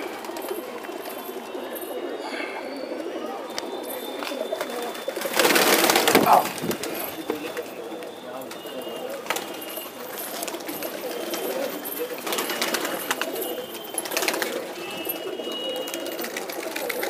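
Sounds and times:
pigeons cooing: 0:00.0 - 0:17.0
wings flapping: 0:04.1 - 0:17.0.

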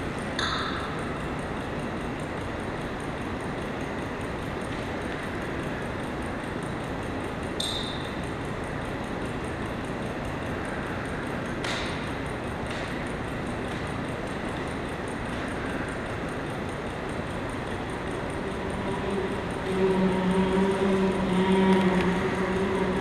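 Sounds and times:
room noise hiss: 0:00.0 - 0:23.0
short ringing ping: 0:00.4 - 0:01.0.

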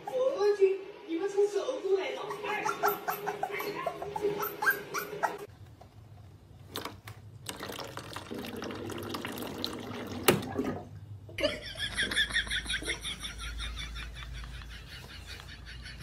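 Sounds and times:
water tap running into tray: 0:07.4 - 0:10.8.

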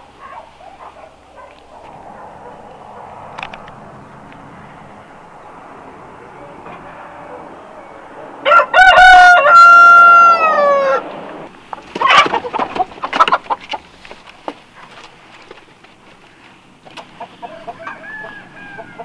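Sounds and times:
rooster crowing: 0:06.2 - 0:11.1, 0:17.4 - 0:19.0.

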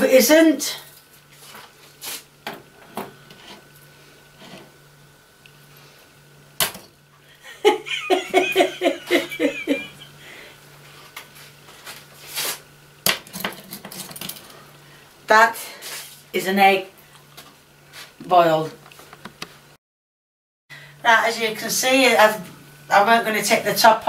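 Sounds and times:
woman giggling: 0:07.4 - 0:10.2.

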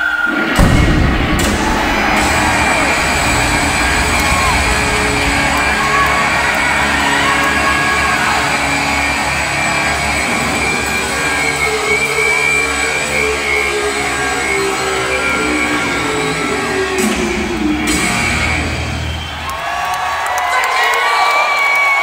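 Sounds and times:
heavy metal band sustained note: 0:00.6 - 0:10.7.

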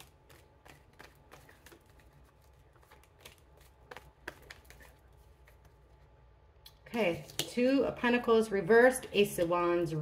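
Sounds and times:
cards being shuffled: 0:00.0 - 0:06.0.

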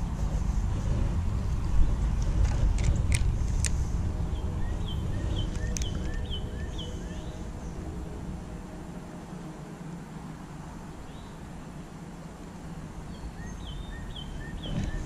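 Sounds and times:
steady low rumble: 0:00.0 - 0:15.0
bird chirping: 0:04.2 - 0:08.2, 0:13.1 - 0:15.0.

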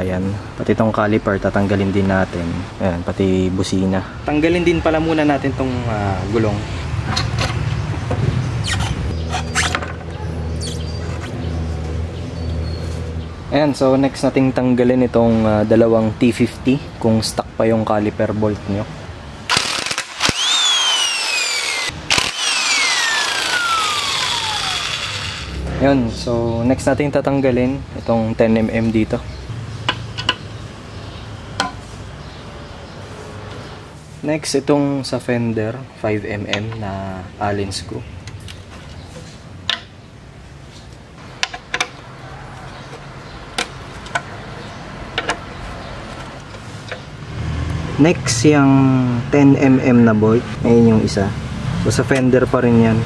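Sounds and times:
power driver whirring: 0:19.5 - 0:25.7.

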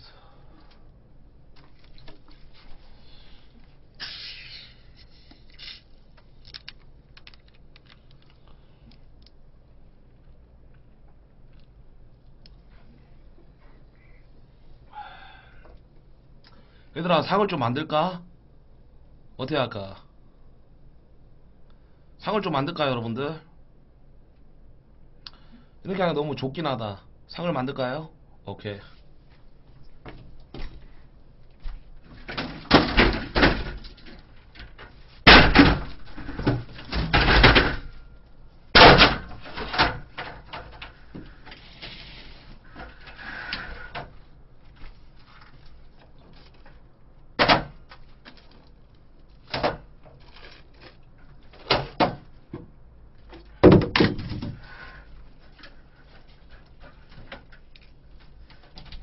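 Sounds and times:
metal table bangs and scraping: 0:35.3 - 0:37.9.

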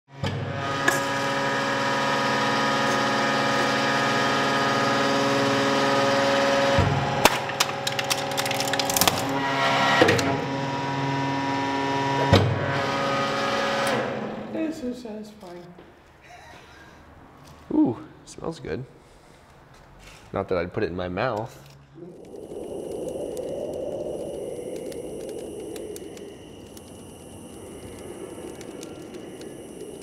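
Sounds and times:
cans crushing with cracks and pops: 0:07.2 - 0:09.4.

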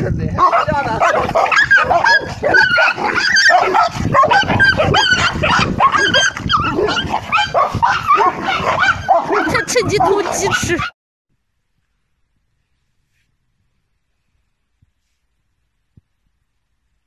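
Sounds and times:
puppies yelping and whining: 0:01.3 - 0:10.9.

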